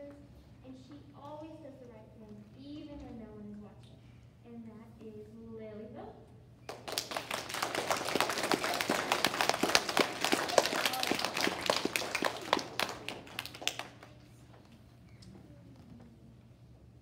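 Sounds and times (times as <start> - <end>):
audience applauding: 6.7 - 14.2.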